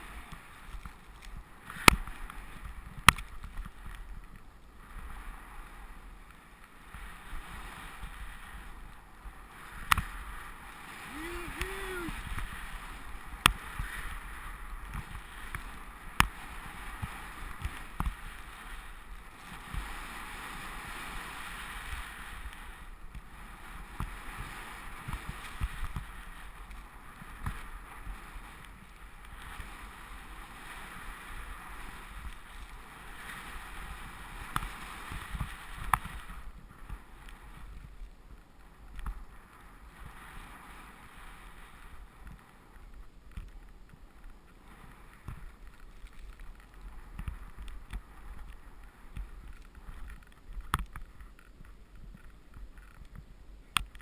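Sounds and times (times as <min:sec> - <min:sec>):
skis swishing through snow: 0:00.0 - 0:54.0.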